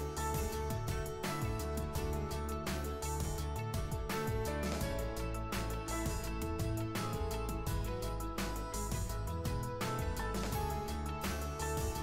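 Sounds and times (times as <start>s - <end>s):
instrumental background music: 0.0s - 12.0s.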